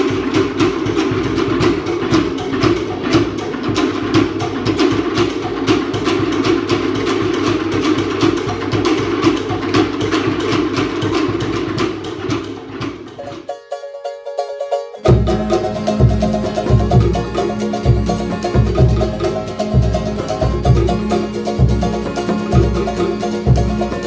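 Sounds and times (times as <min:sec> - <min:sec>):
fast steady drumming: 0:00.0 - 0:13.5, 0:15.0 - 0:24.0.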